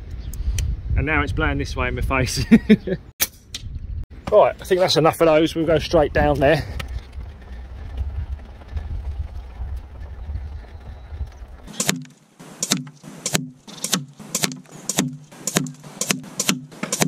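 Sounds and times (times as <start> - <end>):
wind on microphone: 0.0 - 2.5, 3.5 - 4.1, 5.3 - 11.7
pellets smacking target: 11.7 - 17.0.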